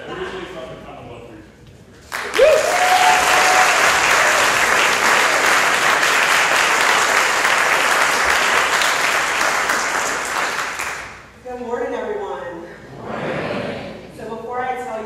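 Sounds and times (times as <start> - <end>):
audience applauding: 2.0 - 11.2.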